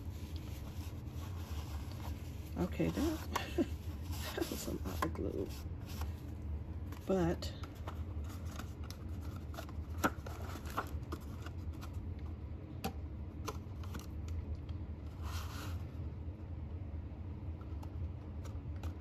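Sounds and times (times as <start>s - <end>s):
steady low hum: 0.0s - 19.0s
paper rustle: 7.6s - 12.0s.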